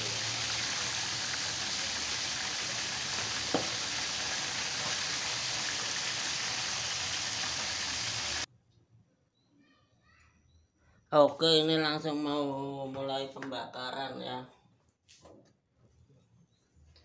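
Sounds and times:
fish sizzling in hot oil: 0.0 - 8.5.

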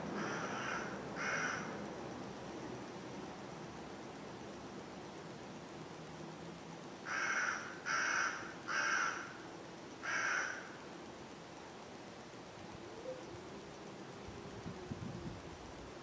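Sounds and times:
crow cawing: 0.2 - 1.8, 7.0 - 9.4, 10.0 - 10.8.

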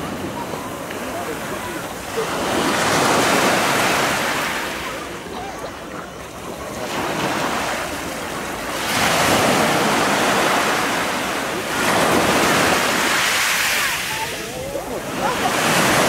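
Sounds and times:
sea waves washing ashore: 0.0 - 16.0.

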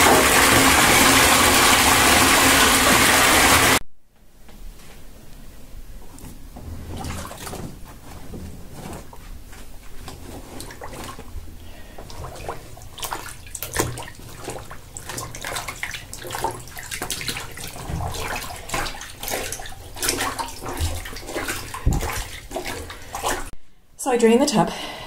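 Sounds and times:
water splashing and swishing: 6.6 - 23.6.

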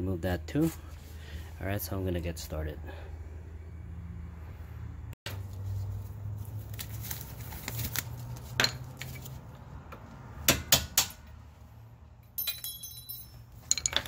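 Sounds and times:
metal tool clinking and tapping: 12.2 - 14.0
ringing metallic jingle: 12.2 - 14.0.

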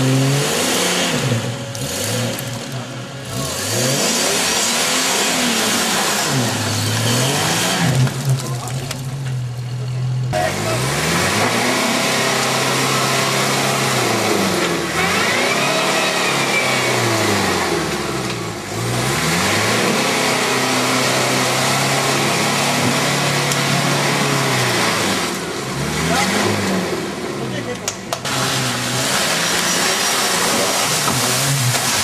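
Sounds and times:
truck engine revving hard: 0.0 - 9.1, 10.3 - 32.0.

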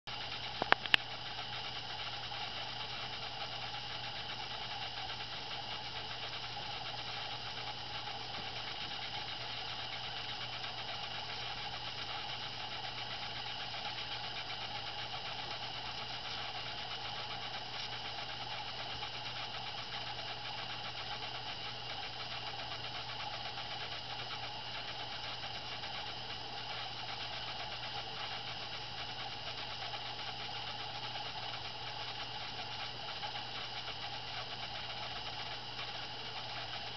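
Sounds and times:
mechanical hum with whir: 0.1 - 36.9.

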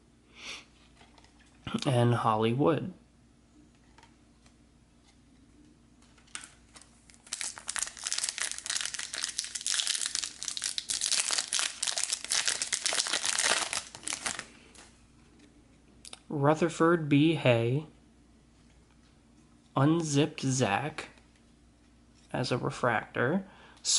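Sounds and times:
wrapper crinkling and tearing: 6.2 - 14.8.

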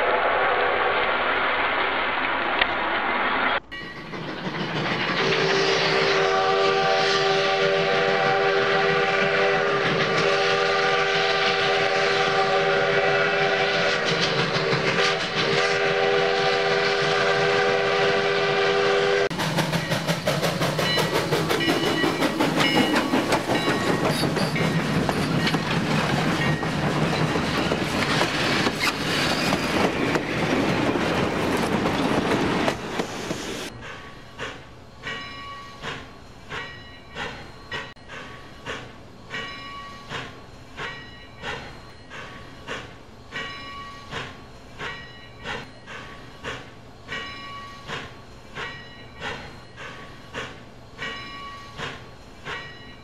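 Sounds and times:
track clatter: 0.0 - 10.4, 11.1 - 18.2, 19.2 - 53.0
rapid steam chuffing: 0.0 - 53.0
multi-tone steam whistle: 5.2 - 19.4.

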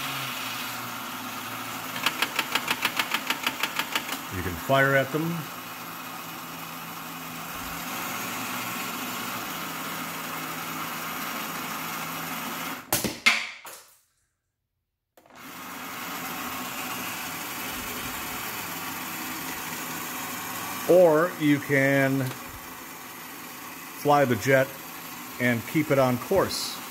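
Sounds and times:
toy electric motor humming: 15.4 - 26.9.

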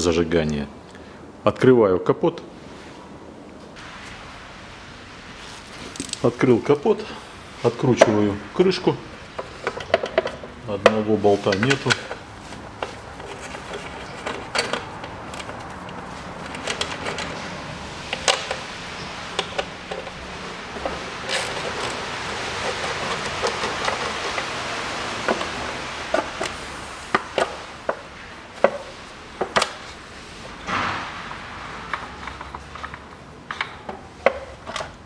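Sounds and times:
tools clicking and knocking: 9.4 - 17.4, 18.1 - 18.7, 19.4 - 20.2, 31.9 - 35.0.

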